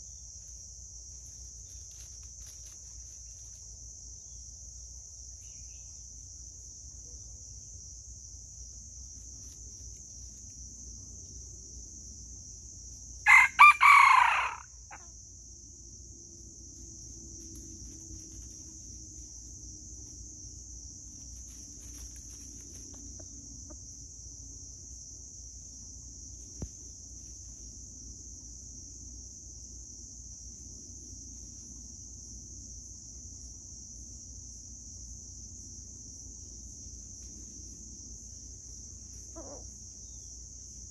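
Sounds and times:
high insect drone: 0.0s - 40.9s
rooster crowing: 13.2s - 15.1s.

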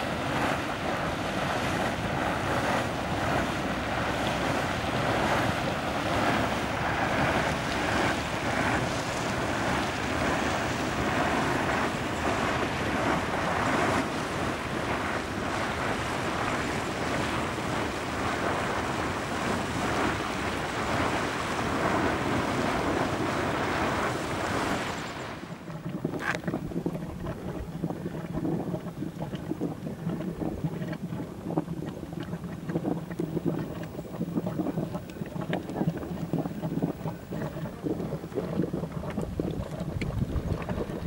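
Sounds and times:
hot spring gurgling and popping: 0.0s - 41.0s
low steady hum: 0.0s - 41.0s
wind on microphone: 0.0s - 41.0s.

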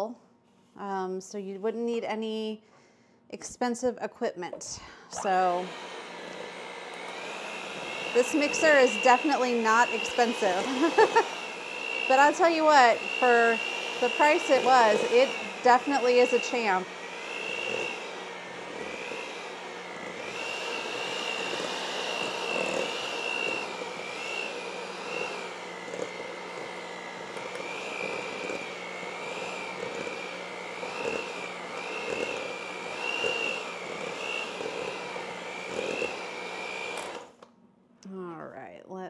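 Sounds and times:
electric hand mixer whining: 5.1s - 37.4s.

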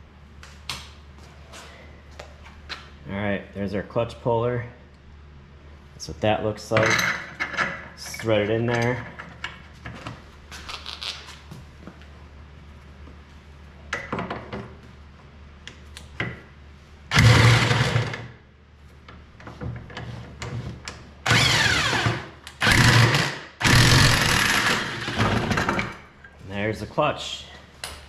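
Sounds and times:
electric impact wrench running: 17.1s - 18.3s, 21.3s - 25.8s.

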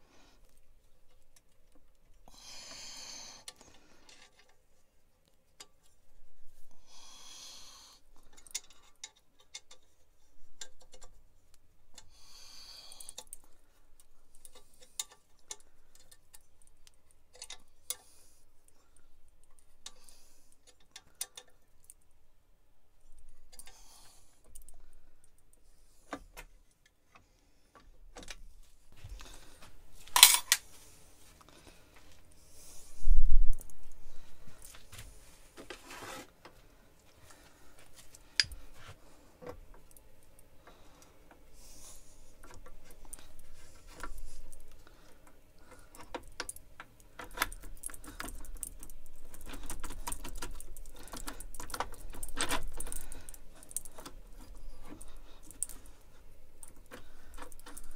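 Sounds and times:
metal parts clinking: 30.0s - 30.6s.

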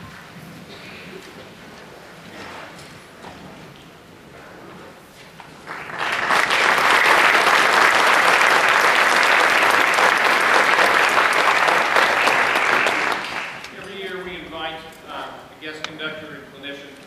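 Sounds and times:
audience applauding: 5.6s - 14.0s.

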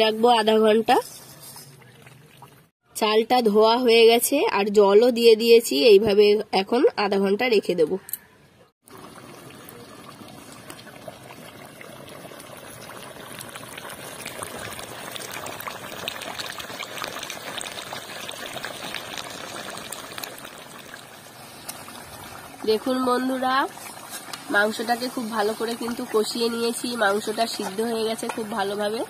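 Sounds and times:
curry bubbling and sizzling in pot: 0.0s - 2.7s, 8.8s - 29.0s.

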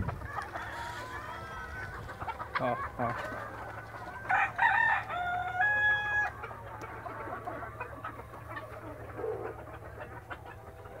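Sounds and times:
chickens clucking: 0.0s - 11.0s
rooster crowing: 4.3s - 6.4s.

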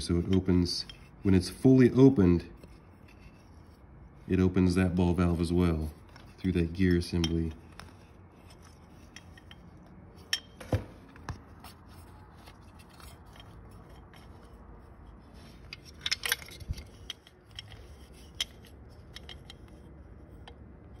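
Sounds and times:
light clicks and taps of parts: 6.0s - 21.0s.

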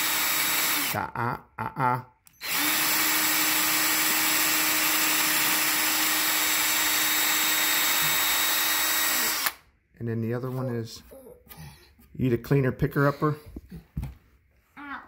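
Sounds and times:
electric drill boring into wood: 0.0s - 1.0s, 2.4s - 9.6s.

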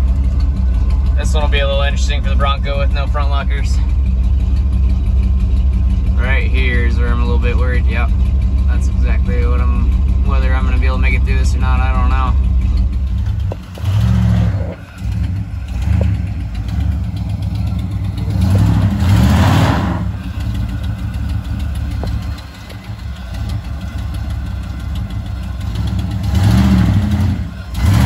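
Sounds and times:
truck engine revving under load: 6.2s - 28.0s.

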